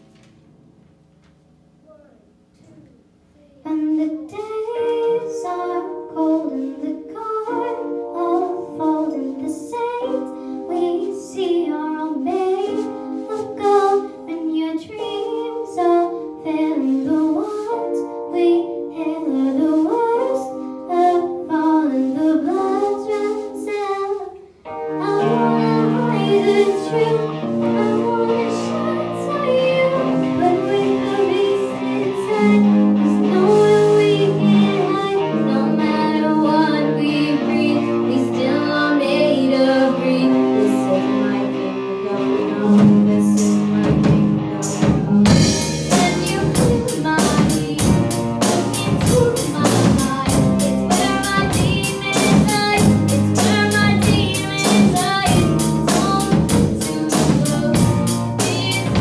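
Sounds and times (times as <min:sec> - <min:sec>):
child singing: 0:03.4 - 0:59.0
rock band playing: 0:24.8 - 0:59.0
bass notes: 0:24.9 - 0:59.0.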